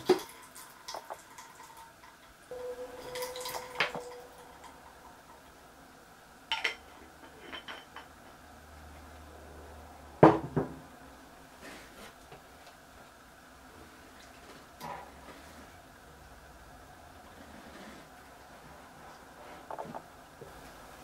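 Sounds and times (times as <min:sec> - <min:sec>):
utensils and dishes clinking: 0:00.0 - 0:05.5, 0:06.5 - 0:08.2.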